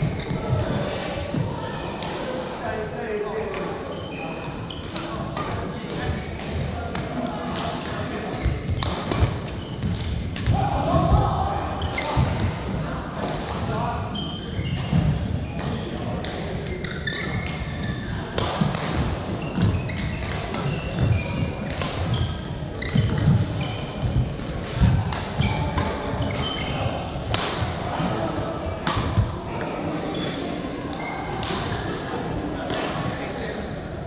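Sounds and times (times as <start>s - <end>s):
shoe squeaks on court: 3.3s - 6.6s, 8.2s - 8.9s, 16.6s - 18.2s, 19.4s - 24.0s, 25.4s - 27.0s, 31.0s - 31.3s
racket hitting shuttlecock: 4.8s - 10.6s, 14.8s - 28.1s, 28.8s - 29.3s, 30.2s - 32.0s.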